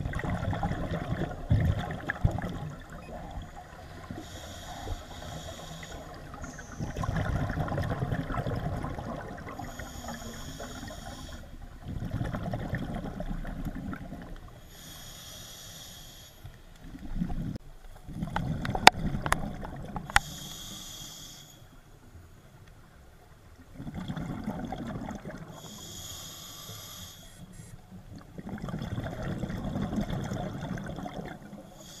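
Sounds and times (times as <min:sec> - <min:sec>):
rumbling exhaust bubbles: 0:06.2 - 0:09.8.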